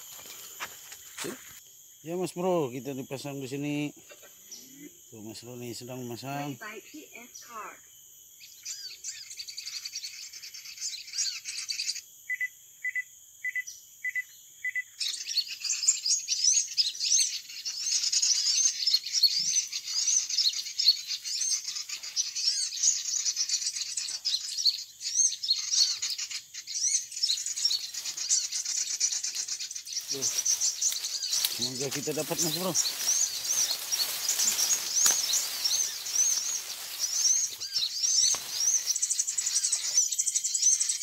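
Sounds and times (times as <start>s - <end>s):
small birds chirping: 0.0s - 41.0s
evenly spaced chirps: 8.4s - 41.0s.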